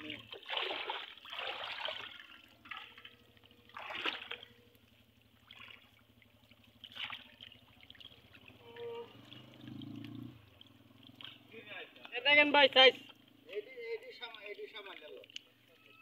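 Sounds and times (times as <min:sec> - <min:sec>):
fish thrashing in water: 0:00.0 - 0:11.6
sharp water splashes: 0:00.0 - 0:15.9
water trickling: 0:00.0 - 0:16.0.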